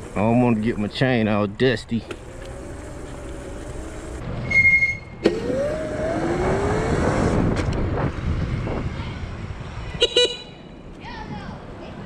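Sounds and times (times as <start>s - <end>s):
electric dirt bike motor whining: 2.1s - 4.2s, 5.2s - 7.6s
short high beep: 4.4s - 5.2s.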